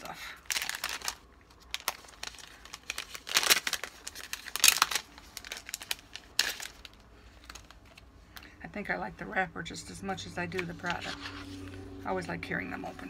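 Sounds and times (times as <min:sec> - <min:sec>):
wrapper crinkling: 0:00.0 - 0:08.2.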